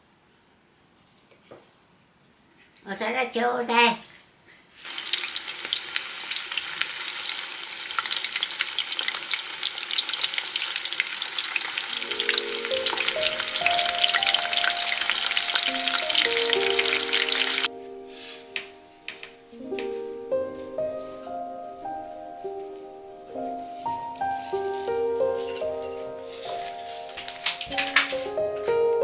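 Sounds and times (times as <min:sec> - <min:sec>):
meat deep-frying in oil: 0:04.8 - 0:17.7.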